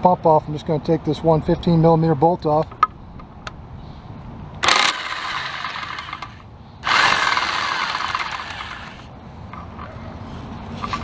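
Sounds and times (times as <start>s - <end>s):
power tool loosening bolt: 4.6s - 9.0s.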